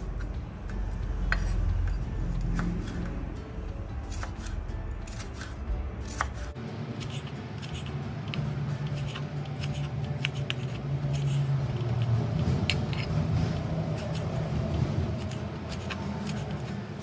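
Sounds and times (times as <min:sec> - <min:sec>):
knife slicing tomato: 0:00.0 - 0:03.2, 0:03.9 - 0:17.0.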